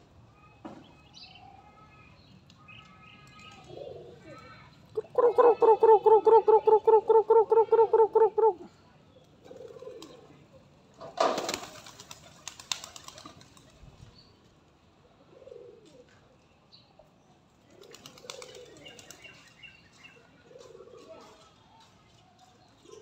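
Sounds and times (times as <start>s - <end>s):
pigeons cooing: 3.6s - 4.2s, 5.0s - 8.8s, 9.4s - 10.3s, 15.2s - 16.2s, 17.7s - 19.2s, 20.4s - 21.4s
pigeon wings clapping and fluttering: 9.5s - 10.3s, 11.1s - 14.0s, 17.6s - 19.7s.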